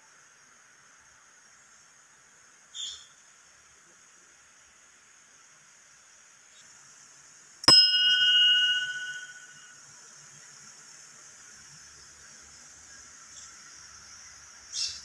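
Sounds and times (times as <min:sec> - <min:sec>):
temple bell ringing: 0:07.7 - 0:09.7.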